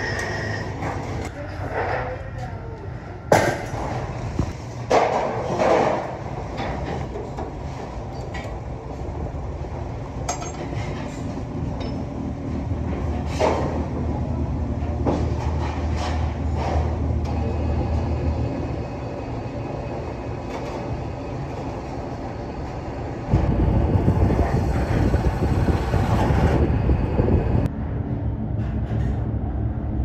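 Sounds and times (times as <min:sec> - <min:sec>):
metal knocks and clatter: 0:10.3 - 0:12.1.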